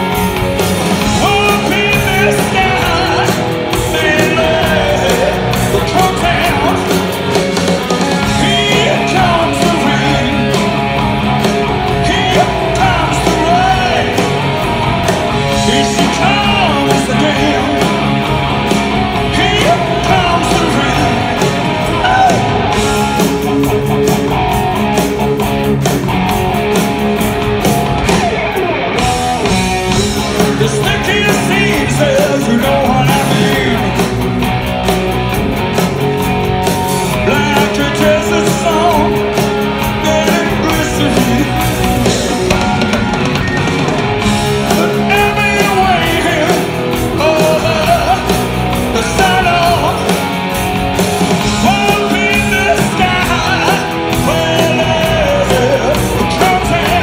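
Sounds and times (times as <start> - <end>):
live rock band playing: 0.0 - 57.0
man singing lead vocal: 0.9 - 11.1, 11.7 - 18.4, 19.0 - 23.4, 30.0 - 34.2, 37.1 - 43.0, 44.5 - 50.4, 51.3 - 57.0.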